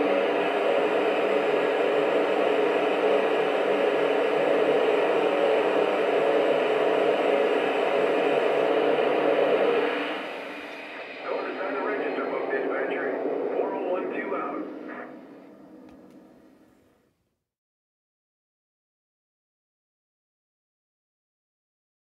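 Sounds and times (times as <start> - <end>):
steam hiss from speaker: 0.0 - 14.6.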